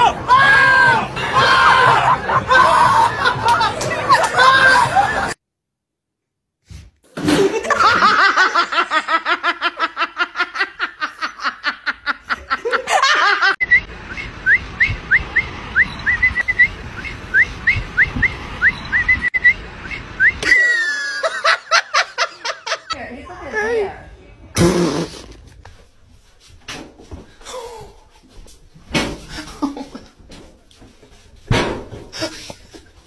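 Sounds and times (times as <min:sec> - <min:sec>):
person laughing high-pitched: 0:20.4 - 0:22.8.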